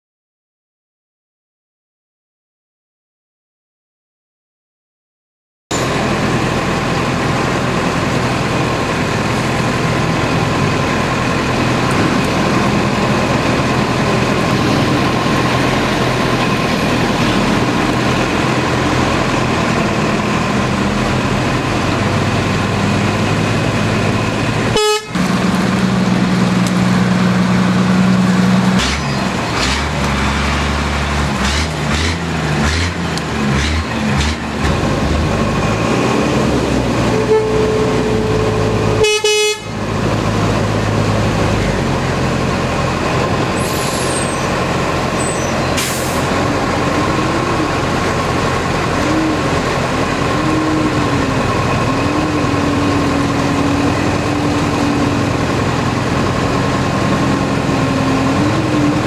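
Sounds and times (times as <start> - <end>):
passing vehicles rumbling: 5.7 - 59.0
road traffic rushing: 5.7 - 59.0
low horn tone: 24.7 - 25.5, 37.0 - 39.8, 48.9 - 51.3.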